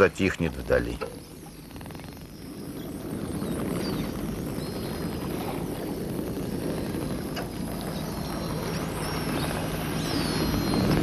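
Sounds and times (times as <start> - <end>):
sea water surging over rock: 1.3 - 11.0
faint high whistles: 7.4 - 11.0.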